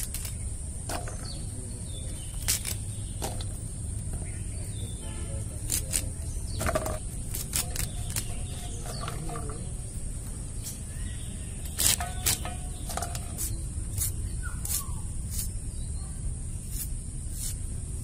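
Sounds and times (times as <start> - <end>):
faint bird chirps: 7.6 - 17.7.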